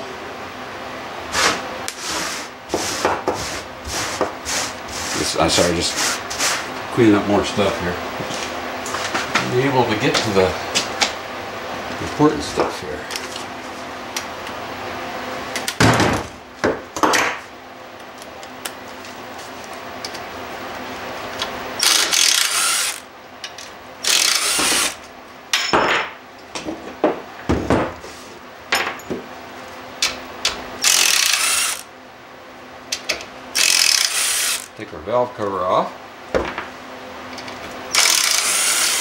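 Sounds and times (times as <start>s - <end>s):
cordless drill running: 21.8s - 23.1s, 24.0s - 25.0s, 30.8s - 31.9s, 33.6s - 34.7s, 37.9s - 39.0s.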